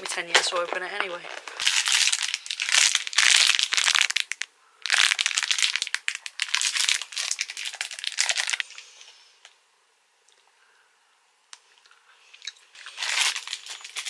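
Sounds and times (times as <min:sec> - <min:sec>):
plastic packaging crinkling: 0:00.0 - 0:08.8, 0:12.4 - 0:14.0.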